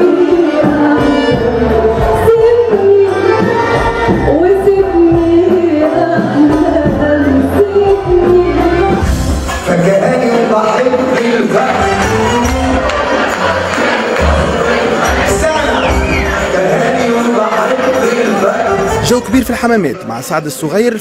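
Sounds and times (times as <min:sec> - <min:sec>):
woman singing into microphone: 0:00.0 - 0:09.1
orchestra of violins and keyboard: 0:00.0 - 0:21.0.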